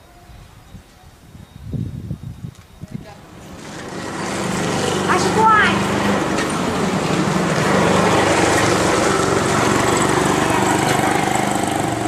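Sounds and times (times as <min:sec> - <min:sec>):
small engine running: 0:03.5 - 0:12.0.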